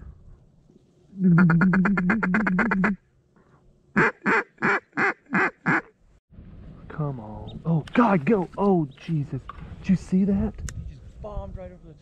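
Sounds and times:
duck call quacks: 1.4 - 3.0, 4.0 - 5.9.

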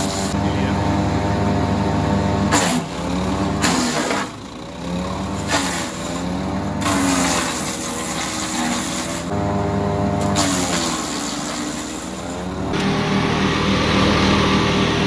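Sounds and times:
blades chipping wood: 0.0 - 0.4, 2.4 - 9.4, 10.2 - 12.9
wood chipper engine running: 0.0 - 15.0.

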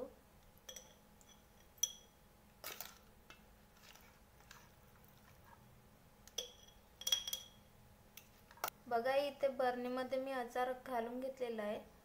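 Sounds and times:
spoon clinking on metal bowl: 0.6 - 2.9, 6.3 - 7.6.

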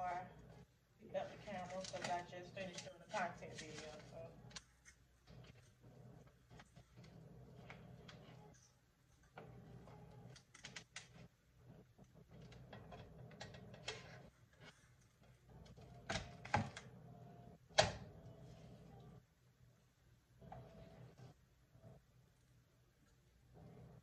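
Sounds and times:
plastic wrap and foam tray crinkling: 1.2 - 5.0.

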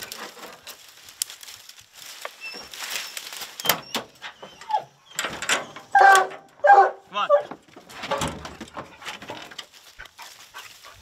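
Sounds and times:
footsteps crunching dry leaves: 0.0 - 3.7, 9.6 - 11.0
tailgate clicks and knocks: 7.5 - 9.6.

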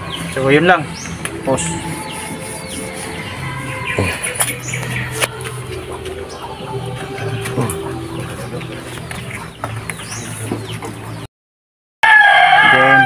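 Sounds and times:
low hum: 0.0 - 11.1
chickens clucking: 0.0 - 11.3
rooster crowing: 12.0 - 13.0.

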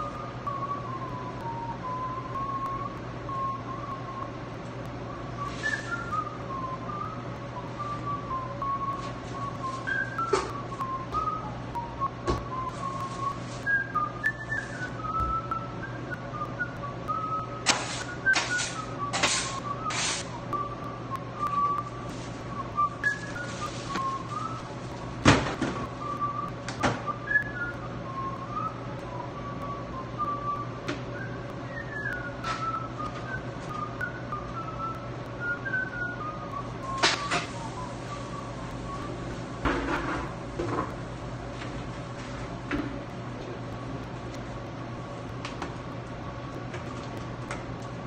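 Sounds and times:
person whistling a tune: 0.0 - 4.4, 5.0 - 24.8, 25.8 - 39.3
steady low hum: 0.0 - 48.0.

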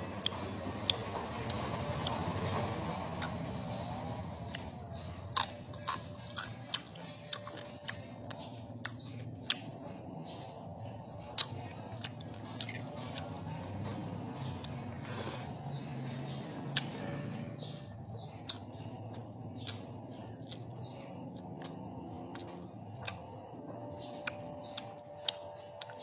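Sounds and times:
chewing roast pork: 0.0 - 26.0.

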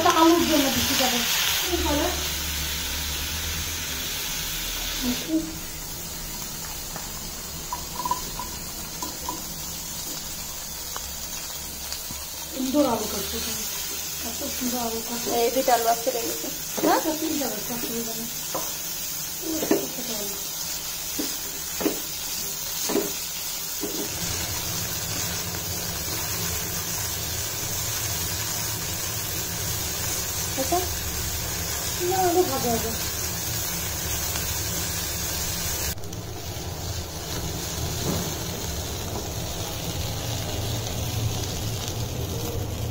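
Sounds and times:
butter sizzling in a pan: 0.0 - 42.9
spatula tapping pan: 6.6 - 9.6.

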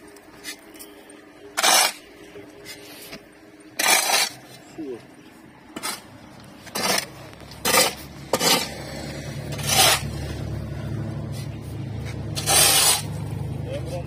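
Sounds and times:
steady low machine hum: 0.0 - 14.0
metallic clattering and scraping: 1.6 - 3.2, 3.8 - 4.7, 5.8 - 10.5, 11.2 - 14.0.

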